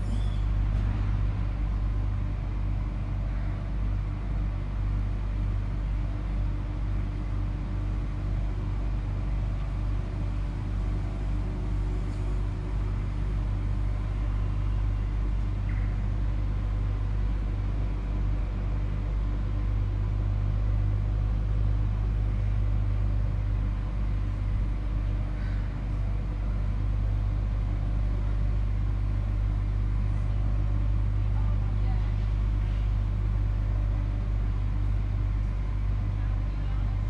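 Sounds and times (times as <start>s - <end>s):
tram rumbling: 0.0s - 1.9s
faint constant hum: 0.0s - 37.0s.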